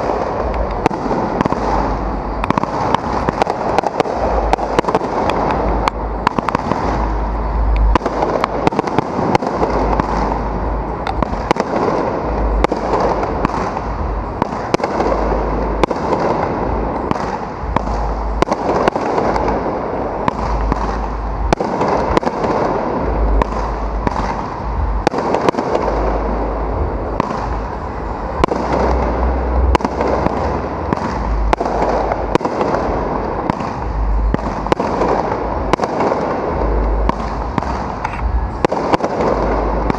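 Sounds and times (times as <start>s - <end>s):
fireworks bursting: 0.0s - 39.9s.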